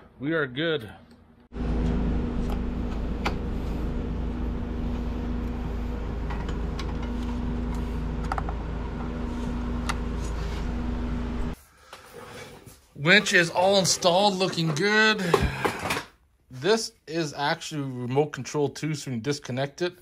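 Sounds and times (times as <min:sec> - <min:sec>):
machine hum with deep rumble: 0:01.5 - 0:11.6.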